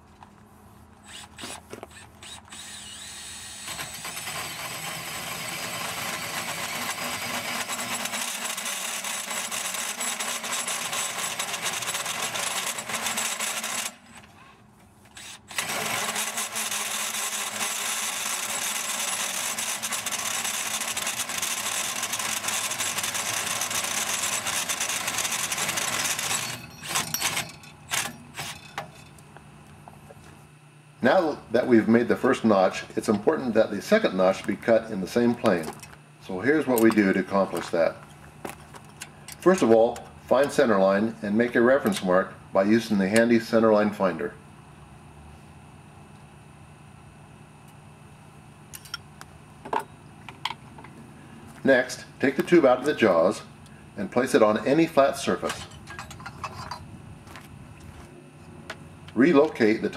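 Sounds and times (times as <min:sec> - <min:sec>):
drill hole saw cutting metal tube: 0:01.0 - 0:14.2, 0:15.2 - 0:28.6.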